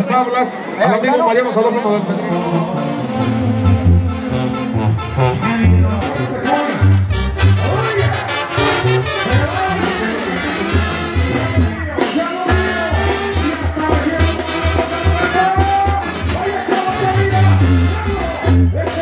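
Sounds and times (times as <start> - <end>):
brass band music: 1.9 - 19.0
horn melodies: 2.2 - 19.0
pulsing low bass line: 3.0 - 9.7.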